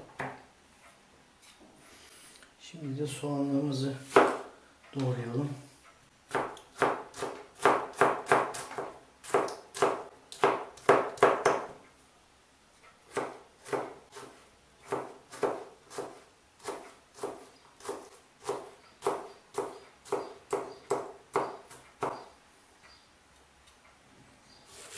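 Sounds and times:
knife chopping on cutting board: 4.1 - 4.5, 6.3 - 11.8, 13.1 - 22.2.

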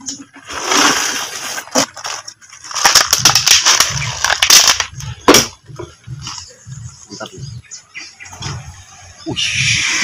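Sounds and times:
eel trap crackling and crunching: 0.6 - 5.4.

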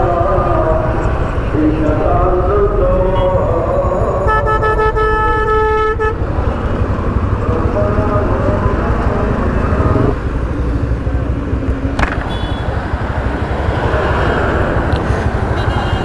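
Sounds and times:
motorcycle engine: 0.0 - 16.0
surrounding vehicles: 0.0 - 16.0
sharp click: 12.0 - 12.3.

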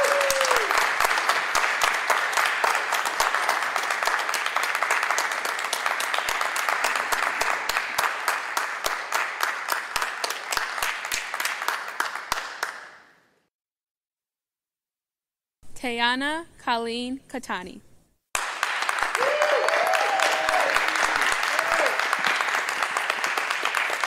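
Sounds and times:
audience applauding: 0.0 - 12.9, 18.4 - 24.0.

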